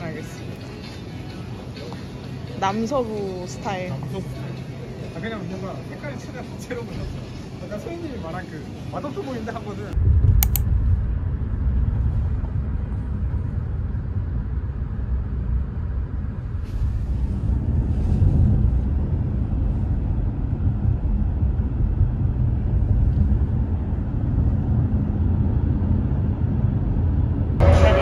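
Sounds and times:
vehicle rumbling: 0:09.9 - 0:28.0.

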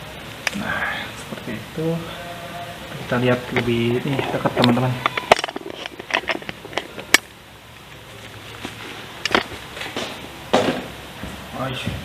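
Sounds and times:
plastic packaging crinkling: 0:03.6 - 0:07.2.

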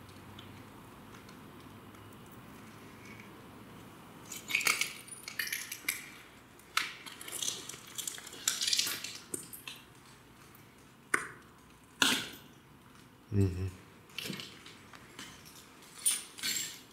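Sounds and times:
ceramic rubble crunching and clinking: 0:04.3 - 0:09.8, 0:14.2 - 0:16.9.

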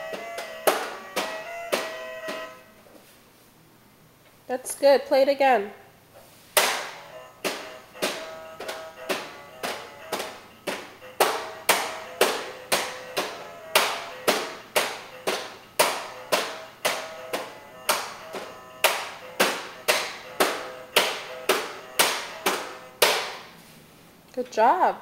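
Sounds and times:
taps on plastic toy: 0:00.1 - 0:02.5.

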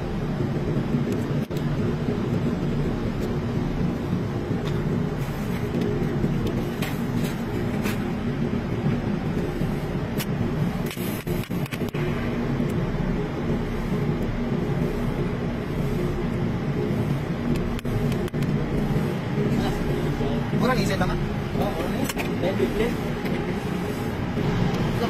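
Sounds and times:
low machinery hum: 0:00.0 - 0:25.0.

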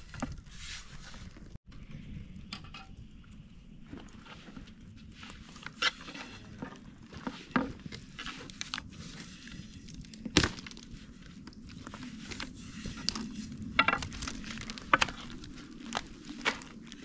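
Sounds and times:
dough rustling: 0:03.8 - 0:17.0.

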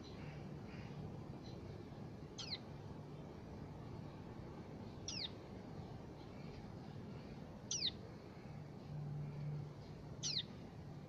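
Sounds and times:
fledgling bird chirps: 0:00.0 - 0:02.7, 0:04.9 - 0:05.4, 0:07.6 - 0:08.1, 0:10.2 - 0:10.6.

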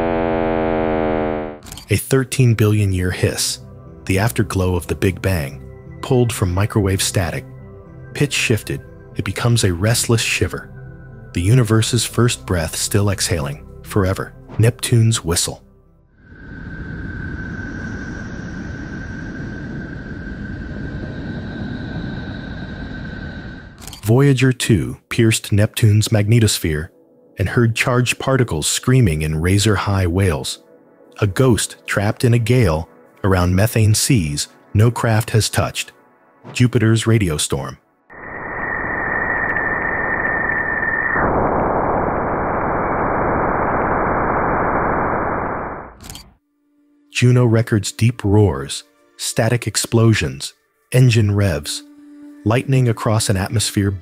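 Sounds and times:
steady high whistle: 0:16.4 - 0:23.5, 0:38.1 - 0:42.4
radio static hiss: 0:38.1 - 0:46.0.

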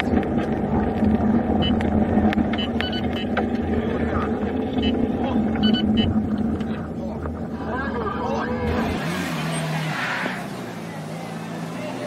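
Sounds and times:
car road and engine noise: 0:00.0 - 0:12.0
short high-pitched beeps: 0:02.5 - 0:03.3, 0:05.6 - 0:06.2.

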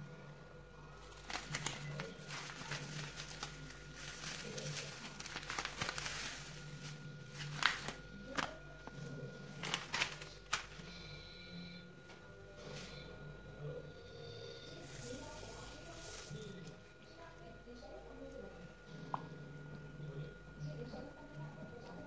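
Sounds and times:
low steady hum: 0:00.0 - 0:22.0
plastic sachet crinkling: 0:01.0 - 0:10.9, 0:14.8 - 0:16.8.

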